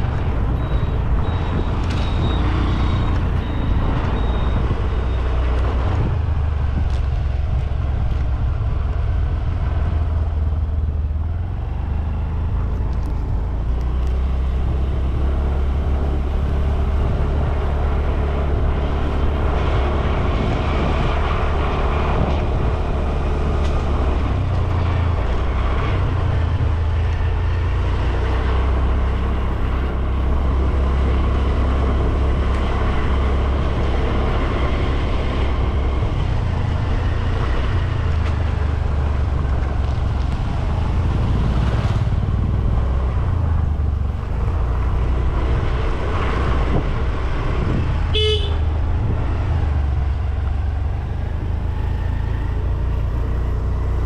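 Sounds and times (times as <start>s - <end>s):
short horn beep: 48.2s - 48.6s.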